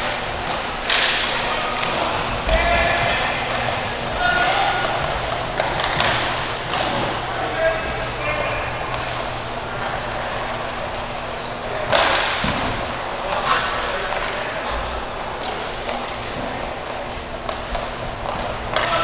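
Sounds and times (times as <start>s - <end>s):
hockey sticks clacking: 0.0s - 19.0s
steady hum: 0.0s - 19.0s.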